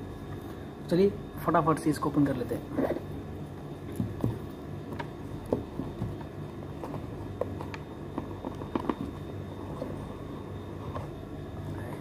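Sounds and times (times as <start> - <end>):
steady low hum: 0.0 - 12.0
fingers tapping and scraping cardboard: 3.9 - 10.0.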